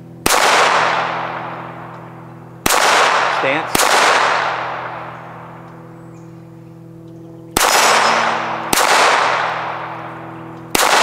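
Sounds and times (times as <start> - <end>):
pistol shots with echo: 0.2 - 1.9, 2.6 - 5.7, 7.6 - 11.0.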